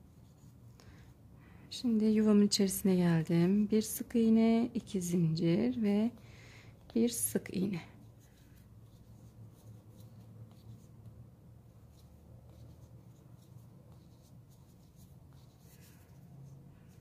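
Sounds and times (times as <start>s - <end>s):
crochet hook scratching yarn: 0.0s - 0.7s, 6.8s - 17.0s
low steady hum: 0.0s - 17.0s.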